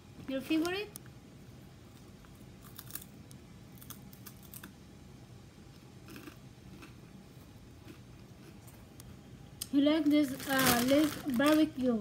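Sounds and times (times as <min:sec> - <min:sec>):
potato chips crunching: 0:02.5 - 0:04.8.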